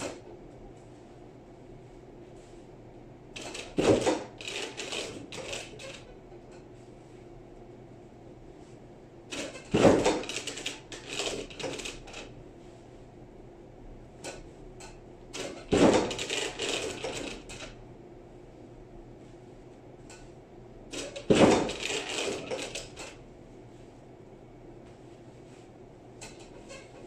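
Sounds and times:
ironing press clunks and rattling: 3.4s - 6.1s, 9.3s - 12.2s, 15.4s - 17.8s, 20.9s - 23.1s.

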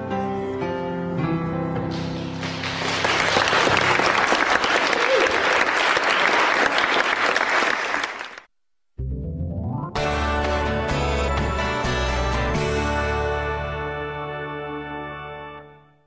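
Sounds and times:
music: 0.0s - 4.0s, 9.0s - 16.0s
audience applauding: 1.9s - 8.5s.

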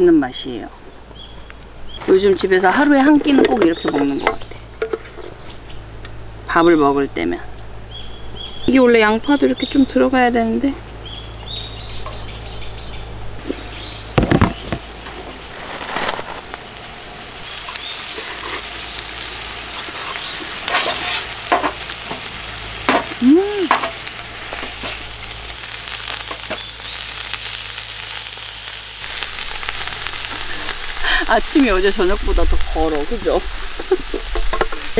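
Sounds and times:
bird chirping: 0.5s - 14.9s, 16.5s - 20.6s
meat sizzling in a frying pan: 11.0s - 34.9s.

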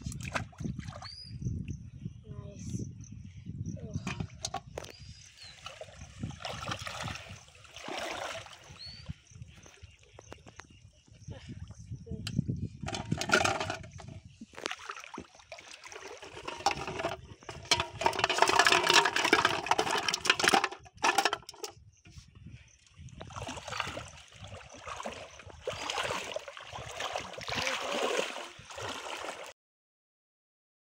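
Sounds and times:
pond water splashing and sloshing: 0.0s - 1.2s, 4.0s - 10.6s, 12.8s - 21.7s, 22.8s - 29.5s.

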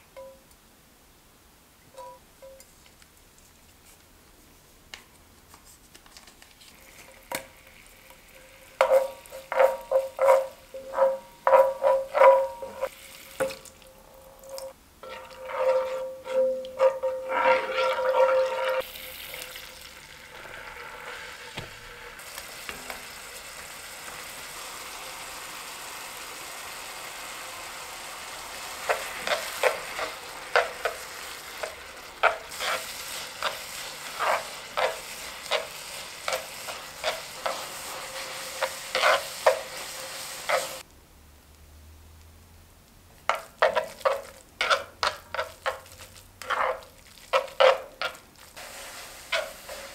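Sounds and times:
sizzling hiss: 6.6s - 40.9s, 44.8s - 49.9s
utensil scraping a ringing pan: 8.8s - 12.9s, 14.3s - 18.8s.

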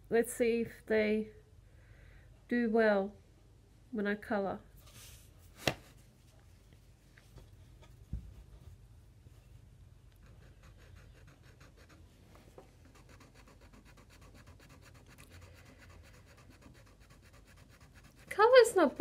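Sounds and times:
pen scratching on paper: 10.2s - 12.1s, 12.8s - 19.0s.

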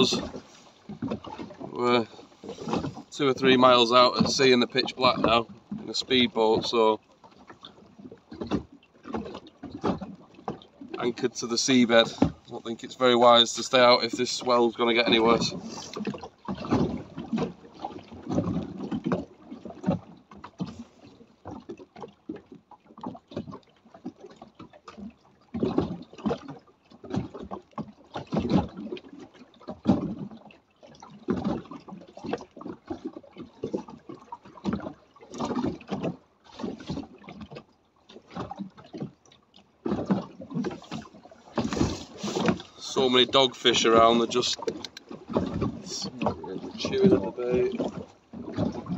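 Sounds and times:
wind and rain buffeting: 0.0s - 7.0s, 10.8s - 18.8s, 40.6s - 48.9s
water slapping against hull: 0.0s - 48.9s.

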